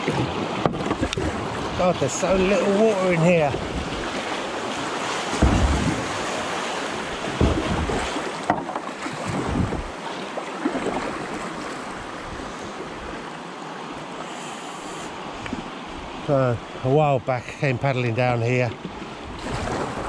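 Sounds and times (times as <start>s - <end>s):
paddle strokes splashing: 0.0s - 15.8s
river water rushing: 0.0s - 18.1s.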